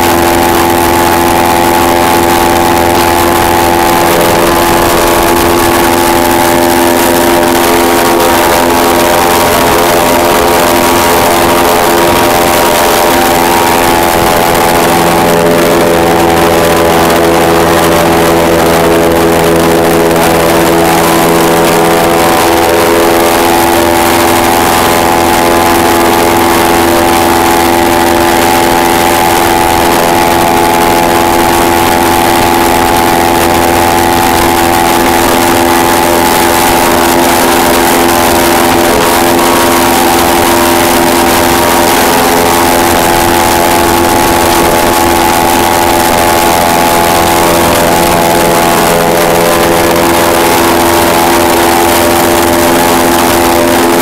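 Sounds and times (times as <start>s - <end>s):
airboat engine and propeller: 0.0s - 54.0s.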